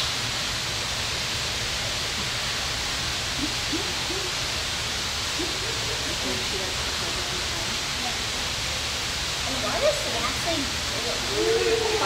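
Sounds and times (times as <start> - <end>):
faint distant voices: 3.2 - 12.0.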